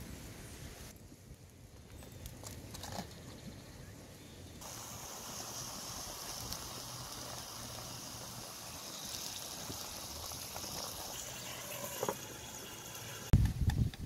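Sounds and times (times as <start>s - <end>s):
liquid pouring into a pan: 5.0s - 13.3s.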